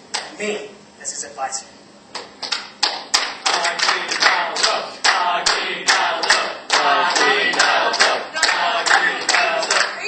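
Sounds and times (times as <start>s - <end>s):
rhythmic clapping: 0.0s - 0.4s, 2.1s - 10.0s
group cheering and calling out: 3.5s - 10.0s.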